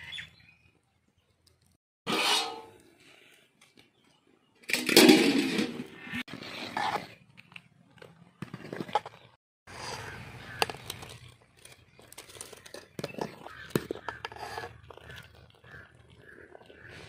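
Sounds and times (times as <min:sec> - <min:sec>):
metal ladle scraping metal pot: 0:02.1 - 0:02.9, 0:09.7 - 0:11.2, 0:12.5 - 0:15.8.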